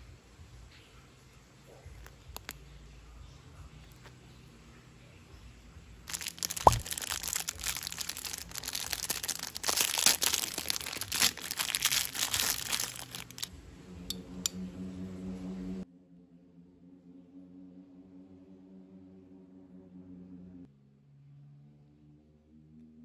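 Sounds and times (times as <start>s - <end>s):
plastic bag crinkling: 6.1s - 13.5s.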